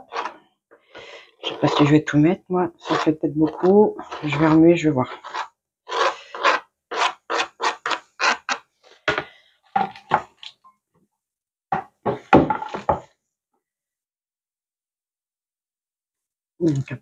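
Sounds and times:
scraping food off cutting board: 0.0s - 2.2s, 2.8s - 10.3s.

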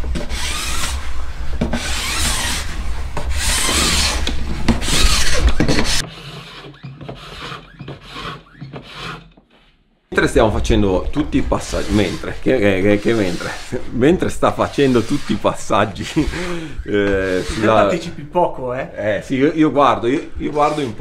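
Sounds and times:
edge tool rasping on ski edge: 3.4s - 9.2s, 11.6s - 13.8s, 14.8s - 16.6s, 17.2s - 18.0s.

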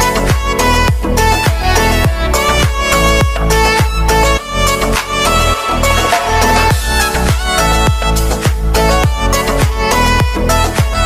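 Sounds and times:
low deep drum hits: 0.4s - 4.1s, 5.3s - 9.2s
held melody notes: 0.6s - 11.0s.

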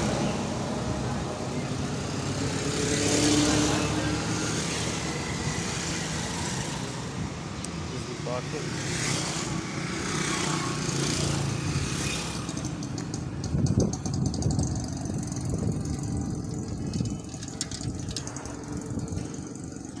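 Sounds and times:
vehicle engine running while driving: 8.2s - 20.0s.

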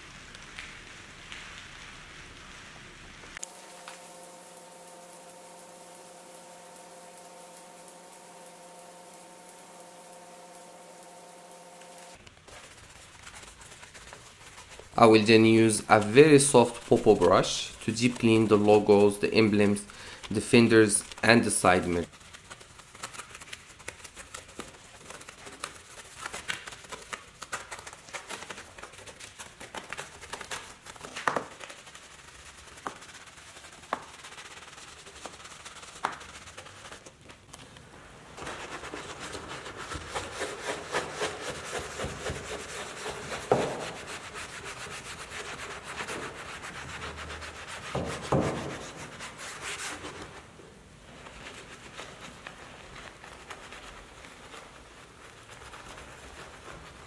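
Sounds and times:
brush scrubbing through foam: 3.4s - 57.0s.

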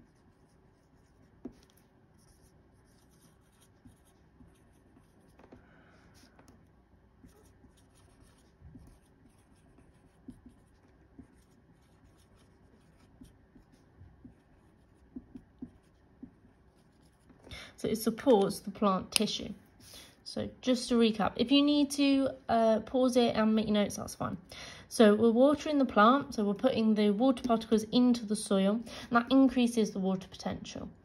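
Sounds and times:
marker pen writing on whiteboard: 0.0s - 17.5s.

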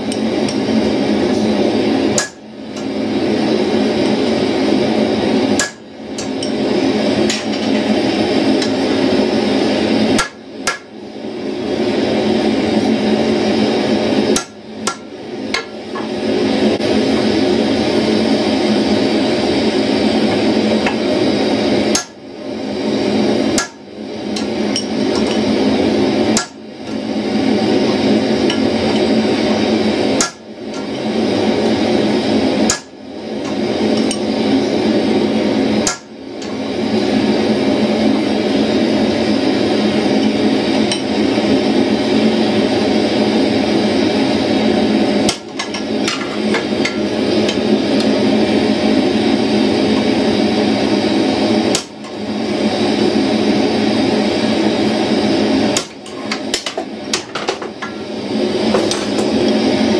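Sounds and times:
hammer striking steel on anvil: 2.2s - 2.9s, 5.6s - 6.6s, 10.2s - 10.9s, 14.4s - 16.1s, 21.9s - 22.2s, 23.6s - 23.8s, 26.4s - 26.6s, 30.2s - 30.9s, 35.8s - 36.1s.

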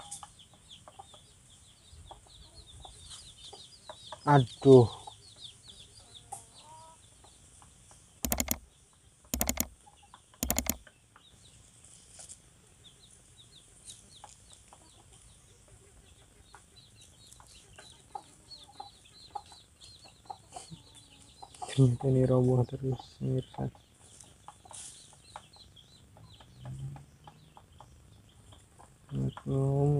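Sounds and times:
chickens clucking: 0.0s - 11.5s, 13.2s - 29.9s
faint high chirping: 8.2s - 8.7s, 9.4s - 10.8s.

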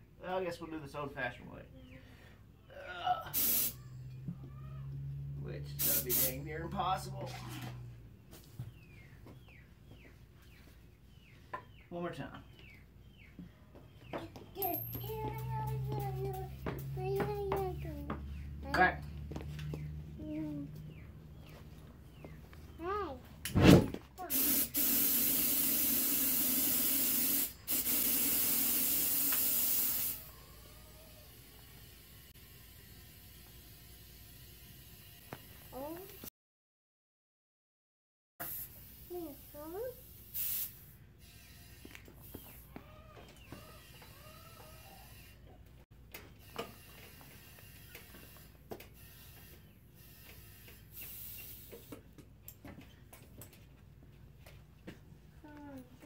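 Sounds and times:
compressed air hissing: 3.3s - 3.8s, 5.7s - 6.6s, 24.3s - 30.3s, 40.1s - 41.0s, 51.0s - 51.9s
brief hiss: 3.4s - 3.8s, 40.3s - 40.9s
tire chain metal clinks: 14.6s - 15.9s.

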